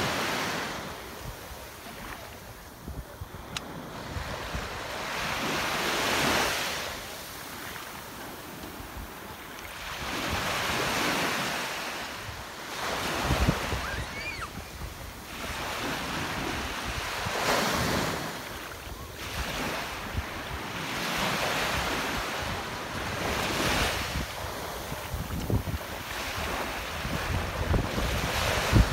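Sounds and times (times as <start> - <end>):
small waves breaking on sand: 0.0 - 28.9
wind buffeting microphone: 21.8 - 28.9.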